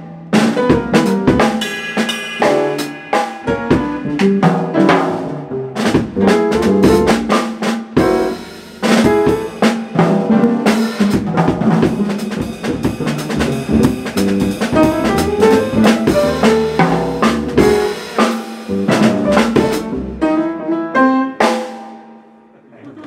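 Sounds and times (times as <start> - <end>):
upright double bass: 0.0 - 1.6, 4.0 - 7.4, 8.0 - 18.1, 18.7 - 20.7
drum and cymbal strikes: 0.0 - 20.1, 21.4 - 22.1
acoustic piano: 0.0 - 22.3.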